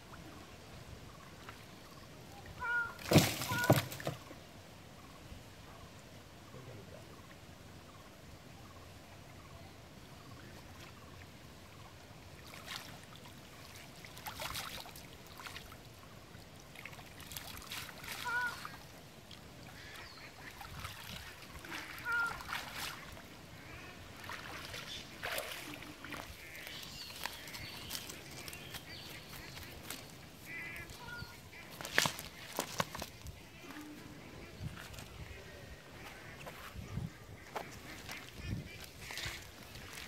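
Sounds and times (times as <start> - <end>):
pond water splashing and sloshing: 0.0 - 40.0
short animal calls: 2.6 - 3.8, 18.1 - 18.8, 21.6 - 22.8.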